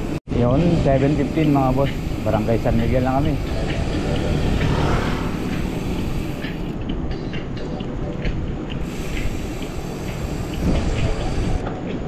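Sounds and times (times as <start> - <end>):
wind rushing over microphone: 4.2 - 7.0.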